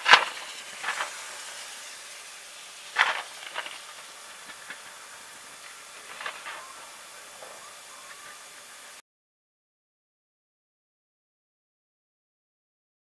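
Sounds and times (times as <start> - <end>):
steady hiss: 0.0 - 9.0.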